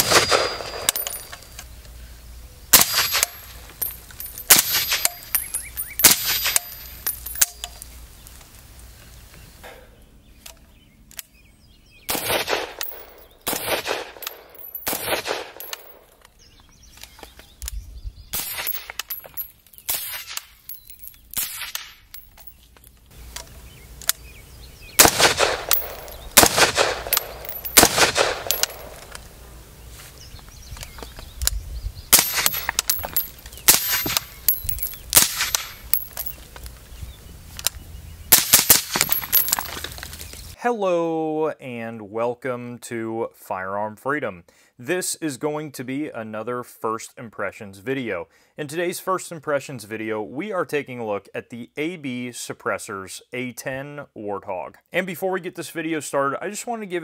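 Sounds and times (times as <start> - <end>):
suppressed rifle shots: 0.0 - 1.1, 12.1 - 16.0, 25.0 - 29.1
light metallic clinks: 0.2 - 1.6, 2.8 - 7.9, 14.2 - 14.9, 15.6 - 16.1, 18.5 - 19.9, 20.6 - 22.8, 25.7 - 26.4, 27.1 - 29.2, 32.2 - 36.6, 38.6 - 40.1.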